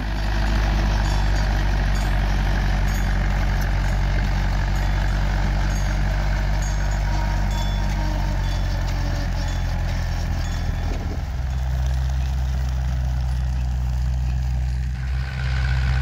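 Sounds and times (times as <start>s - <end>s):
manure spreader beaters: 0.0s - 16.0s
tractor engine under load: 0.0s - 16.0s.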